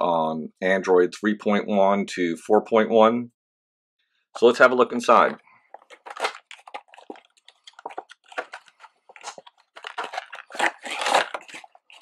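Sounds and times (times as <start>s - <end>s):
plastic box crackling and clicking: 5.8s - 12.0s.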